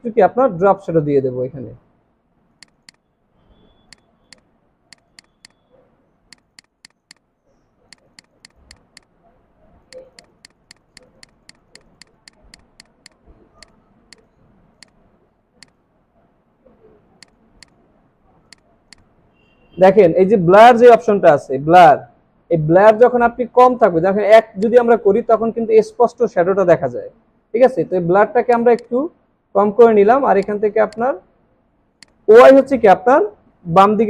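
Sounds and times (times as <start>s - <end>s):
computer mouse clicking: 2.6s - 3.0s, 3.9s - 5.7s, 6.3s - 7.3s, 7.9s - 9.1s, 9.9s - 15.0s, 15.6s - 15.8s, 17.2s - 17.8s, 18.5s - 19.1s, 32.0s - 32.2s.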